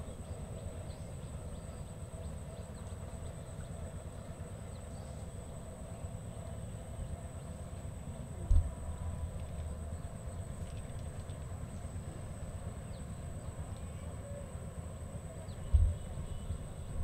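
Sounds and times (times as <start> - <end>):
faint ticks: 13.7 - 14.0.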